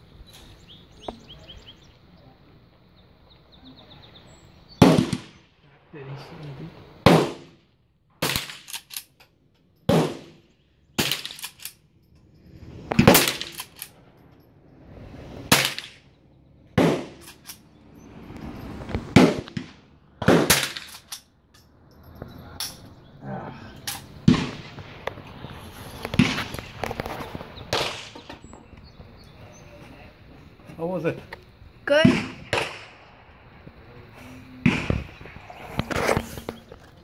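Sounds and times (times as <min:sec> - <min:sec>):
rifle shots: 0:04.8 - 0:05.5, 0:07.0 - 0:07.6, 0:08.2 - 0:09.1, 0:09.9 - 0:10.4, 0:11.0 - 0:11.8, 0:12.9 - 0:14.0, 0:15.5 - 0:16.1, 0:16.8 - 0:17.6, 0:19.1 - 0:21.2, 0:23.9 - 0:25.1, 0:26.1 - 0:28.4, 0:31.9 - 0:33.6, 0:34.6 - 0:36.4.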